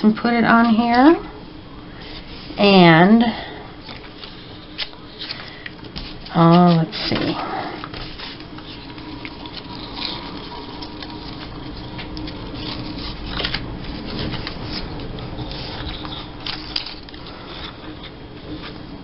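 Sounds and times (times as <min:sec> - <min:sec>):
low steady hum: 0:00.0 - 0:19.0
paper strips rustling on table: 0:12.2 - 0:17.8.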